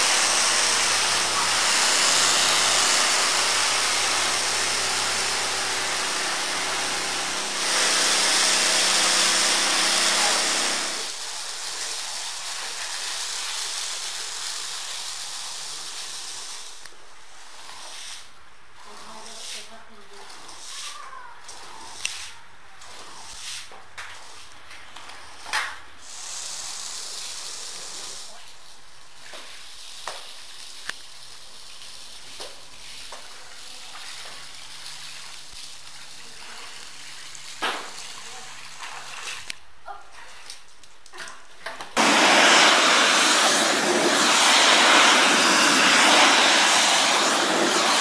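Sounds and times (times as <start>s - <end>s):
pressure washer spraying water: 0.0s - 16.8s, 26.0s - 28.4s, 42.0s - 48.0s.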